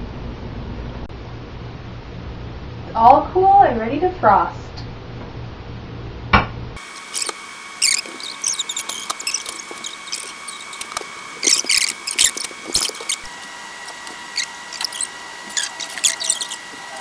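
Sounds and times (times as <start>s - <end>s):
high-pitched squeaks and chirps: 6.8s - 17.0s
steady high whine: 6.8s - 17.0s.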